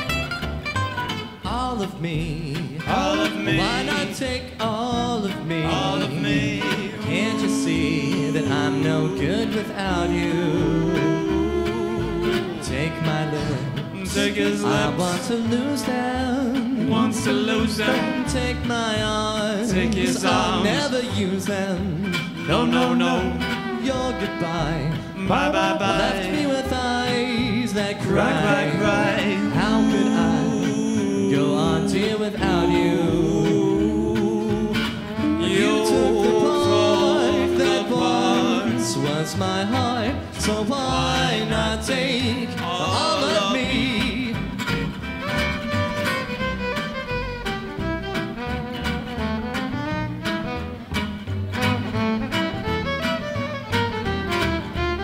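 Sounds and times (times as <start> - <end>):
acoustic guitars strumming: 0.0 - 55.0
plucked upright bass: 0.0 - 55.0
violin: 0.0 - 55.0
person singing: 1.5 - 44.5.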